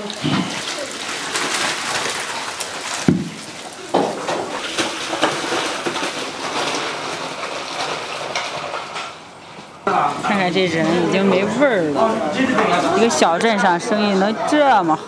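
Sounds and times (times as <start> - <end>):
liquid and meat splashing: 0.0 - 9.4
heavy thump: 3.1 - 3.4.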